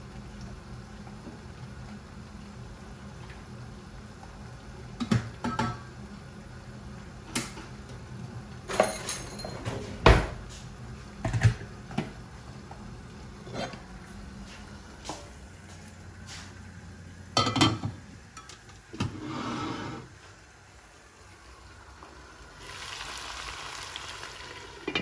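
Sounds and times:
cookware knocks and clinks: 5.0 - 5.8, 8.7 - 10.3, 17.4 - 18.6.

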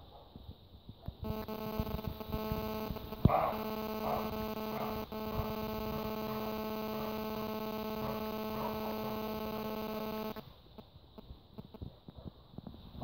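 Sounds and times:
faint low clicks: 1.2 - 10.4
electrical hum: 1.2 - 10.5.

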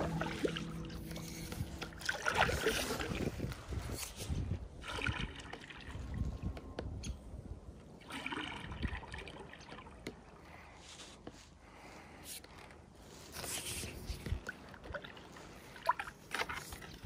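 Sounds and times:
paddle splashing in water: 0.0 - 3.5
water trickling: 0.0 - 4.0.

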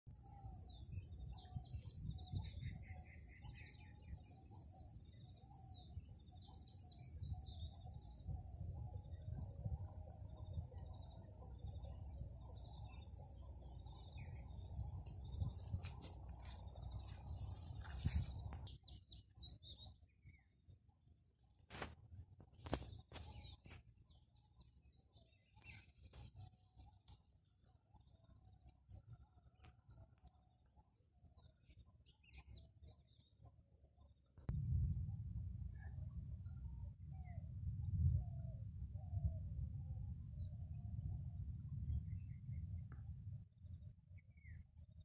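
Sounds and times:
shrill insect trill: 0.1 - 18.7
low rumble on microphone: 5.7 - 19.8, 34.5 - 45.0.

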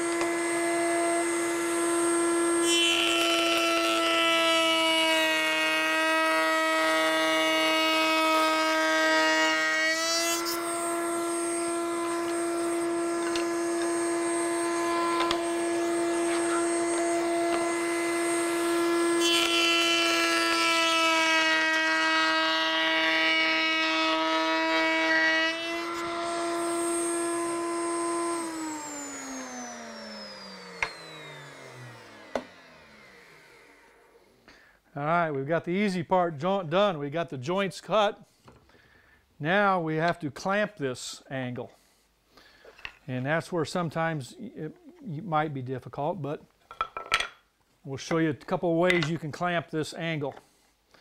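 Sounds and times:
rough wood cutting noise: 0.0 - 34.2
router high whine: 0.0 - 34.3.

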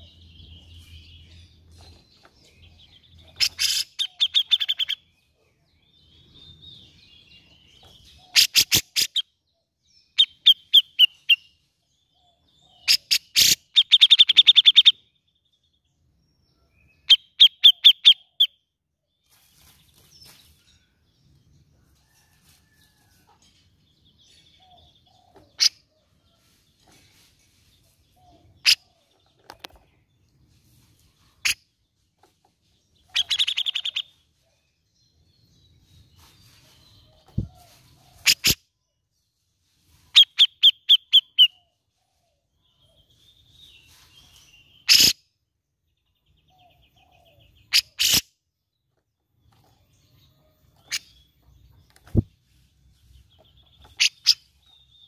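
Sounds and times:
bird calling in rapid bursts: 8.3 - 9.2, 33.1 - 34.1.

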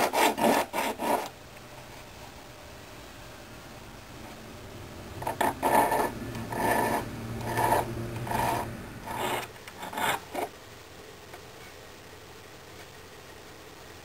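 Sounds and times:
hand file rasping on metal: 0.0 - 1.3, 5.2 - 10.5.

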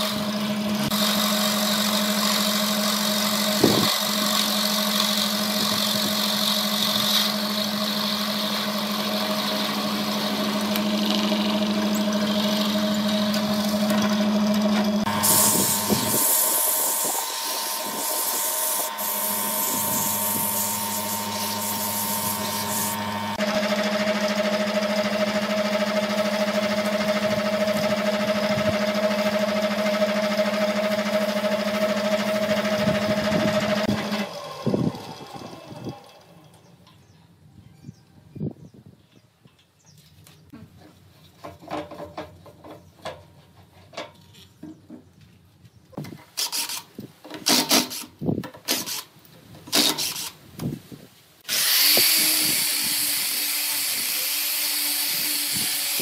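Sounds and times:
wood lathe motor hum: 0.0 - 36.6
turning tool scraping wood: 0.8 - 23.4
sandpaper hissing on spinning wood: 15.0 - 23.4, 51.5 - 56.0.

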